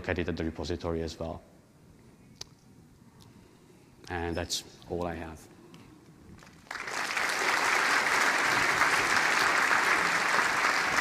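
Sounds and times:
audience applauding: 6.4 - 11.0.

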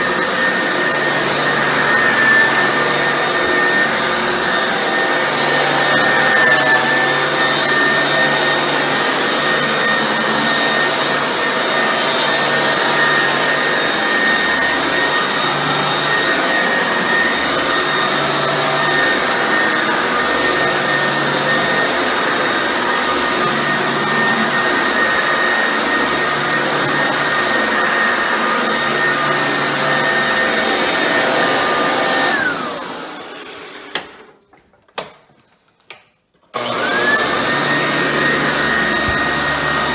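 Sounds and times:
upright vacuum running: 0.0 - 34.3, 36.5 - 39.9
vacuum motor winding down: 36.6 - 39.9.

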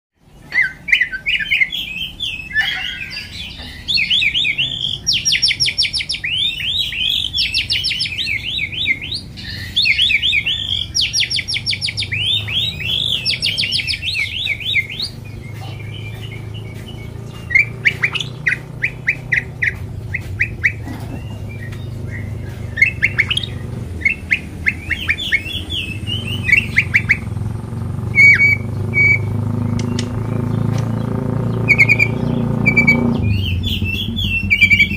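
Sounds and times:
bird singing trills and whistles: 0.2 - 34.9
steady low hum: 3.3 - 34.9.

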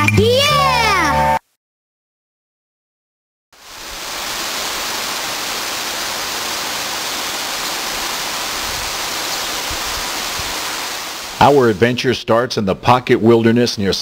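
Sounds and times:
creek water rushing: 3.6 - 11.9.

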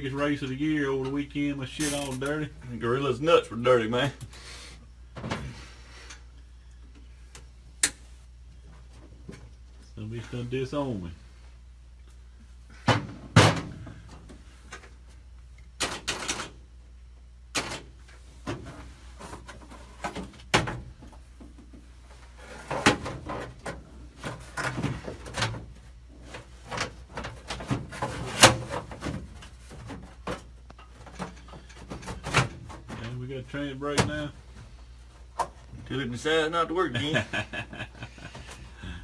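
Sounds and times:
steady low hum: 0.0 - 39.0
hand tools and metal parts clattering: 1.0 - 2.5, 17.5 - 34.4.

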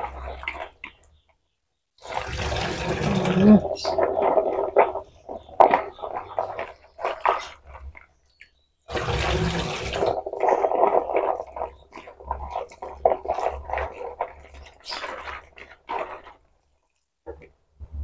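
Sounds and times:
water splashing at sink: 2.0 - 8.0, 8.9 - 17.5
scraping against bowl: 2.8 - 8.0, 9.2 - 16.4
vegetables swished in bowl: 9.5 - 16.5.

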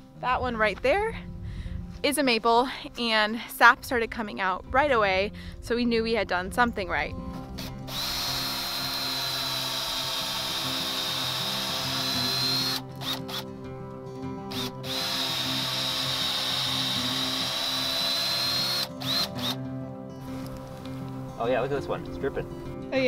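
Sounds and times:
power drill whining: 7.6 - 13.4, 14.5 - 19.6.

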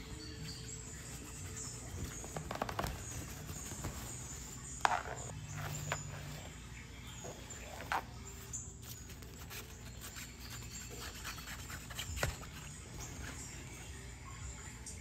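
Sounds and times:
fabric rustling: 1.0 - 6.4.

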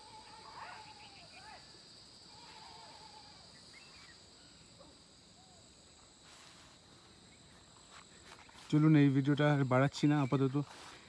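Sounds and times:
faint bird chirps: 0.0 - 6.0
insect drone: 0.0 - 11.0.

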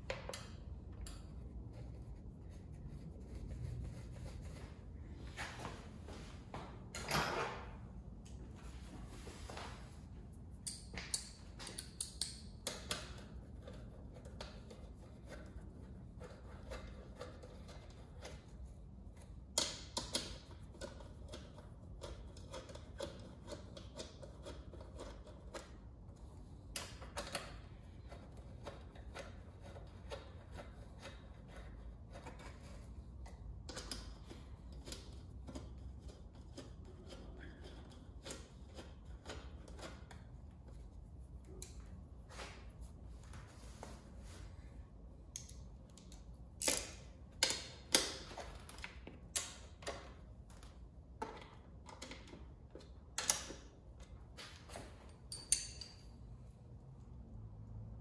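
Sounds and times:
metal clinks: 55.3 - 56.2.

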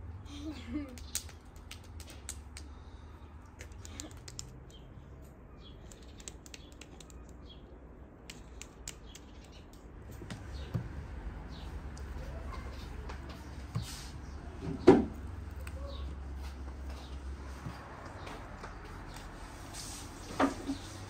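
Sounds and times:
hands clapping and patting: 0.8 - 2.8, 3.5 - 4.8.

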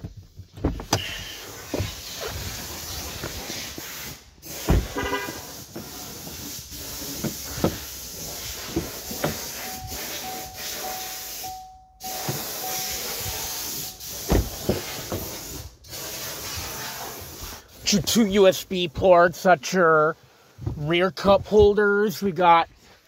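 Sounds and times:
handling rustle and hiss: 0.5 - 17.8
faint repeating beep: 9.7 - 13.0.

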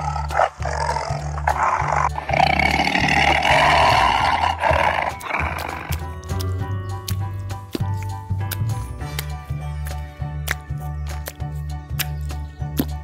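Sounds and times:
tiger roaring: 0.0 - 6.0
music with bass line: 0.0 - 13.0.

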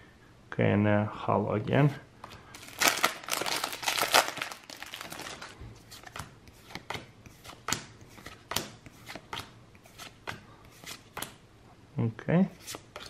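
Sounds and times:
foil wrapper crinkling: 2.6 - 5.6.

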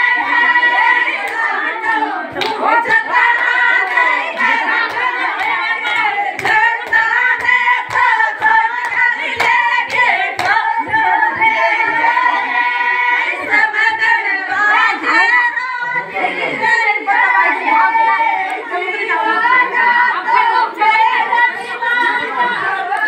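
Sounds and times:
women singing folk song: 0.0 - 23.0
hand claps: 1.1 - 11.5.

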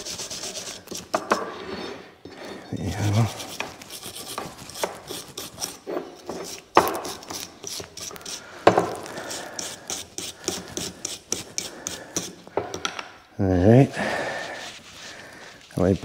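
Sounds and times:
wire brush scraping metal: 2.8 - 12.2.

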